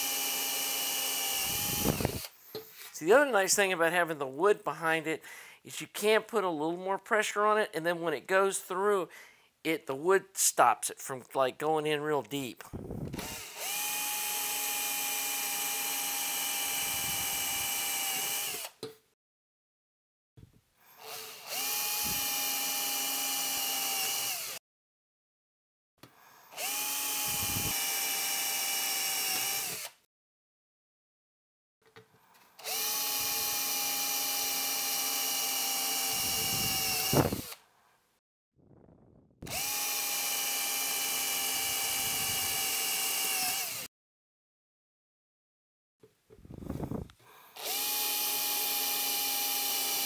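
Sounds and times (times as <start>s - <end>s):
cordless drill motor whine: 0.0s - 2.4s, 12.9s - 18.8s, 20.9s - 24.6s, 26.3s - 30.0s, 32.6s - 37.6s, 39.4s - 43.9s, 47.6s - 50.0s
drill bit snapping through: 0.2s - 2.3s, 13.1s - 14.4s, 15.5s - 18.9s, 26.6s - 30.0s, 32.6s - 37.6s, 39.4s - 43.9s.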